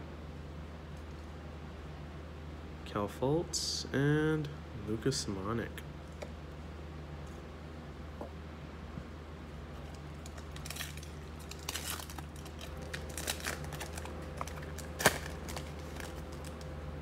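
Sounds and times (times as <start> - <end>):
steady low hum: 0.0 - 17.0
wrapper crinkling and tearing: 9.8 - 16.8.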